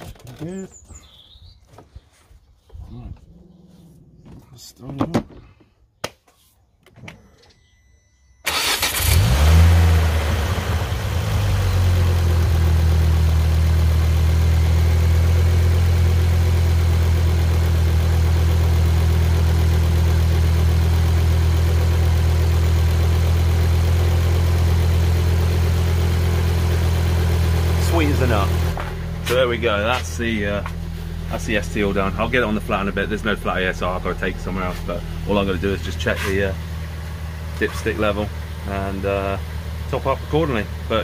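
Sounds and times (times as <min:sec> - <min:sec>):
car engine starting and idling: 0:08.4 - 0:41.0.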